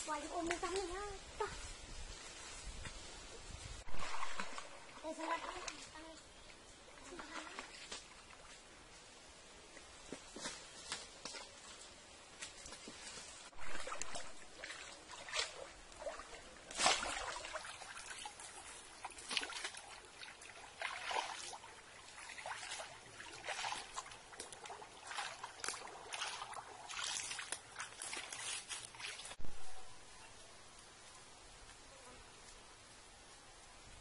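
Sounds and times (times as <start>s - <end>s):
water splashing and sloshing: 3.5s - 6.2s, 6.9s - 9.0s, 10.0s - 29.5s.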